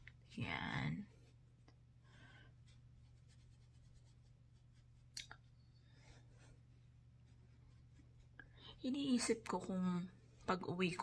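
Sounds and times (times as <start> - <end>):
low steady hum: 0.0 - 11.0
makeup brush brushing skin: 2.6 - 5.6.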